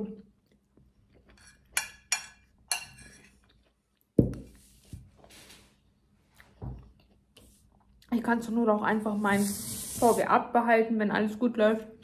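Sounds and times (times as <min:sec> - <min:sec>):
metal spoon clinking on plate: 0:01.3 - 0:03.3.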